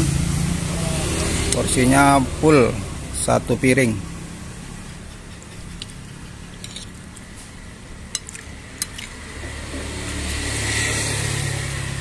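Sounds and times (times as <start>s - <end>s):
passing vehicle engine rumble: 0.0s - 12.0s
metal spoon clinking on plate: 6.6s - 7.0s.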